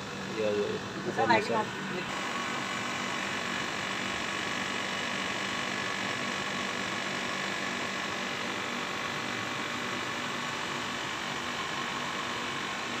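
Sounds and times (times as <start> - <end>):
tumble dryer hum and whir: 0.0 - 13.0.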